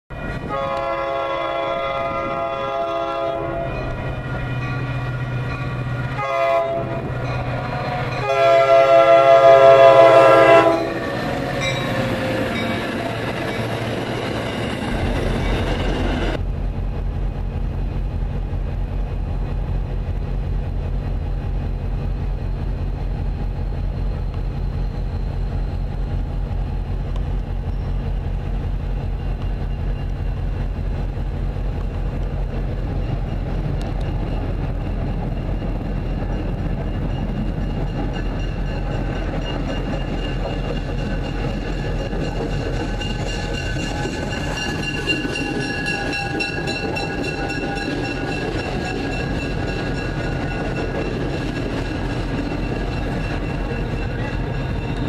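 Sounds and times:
locomotive air horn blasts: 0.1 - 4.0, 6.2 - 11.7
diesel train rumble: 0.1 - 55.0.

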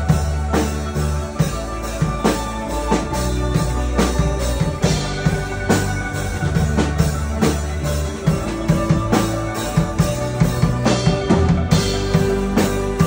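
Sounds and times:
band playing instrumental music: 0.0 - 13.0
steady drum beat: 0.0 - 13.0.

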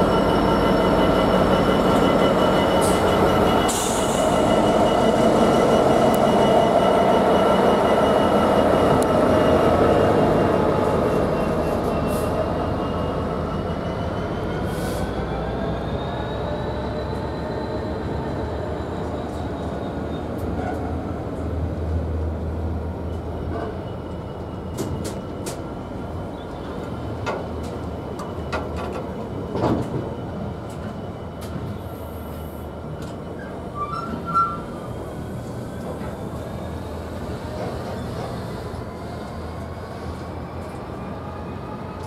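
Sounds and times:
train rumbling on track: 0.0 - 42.0
faint high wheel squeal: 10.8 - 20.9, 29.8 - 40.1.

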